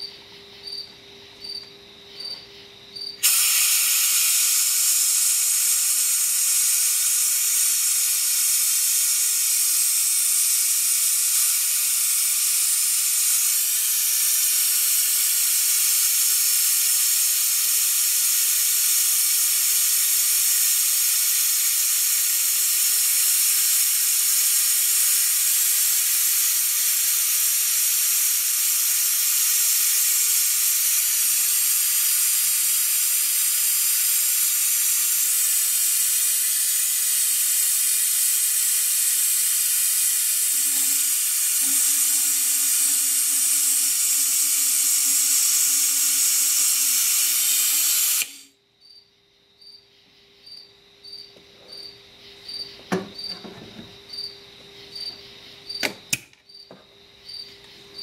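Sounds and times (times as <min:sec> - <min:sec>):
air-powered evacuator hissing: 0:03.2 - 0:48.5.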